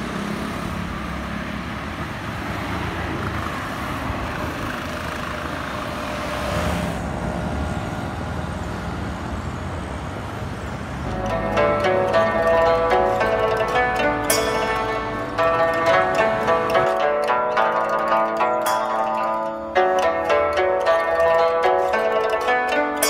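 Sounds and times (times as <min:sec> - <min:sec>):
cars passing on road: 0:00.0 - 0:23.0
plucked string music: 0:11.1 - 0:23.0.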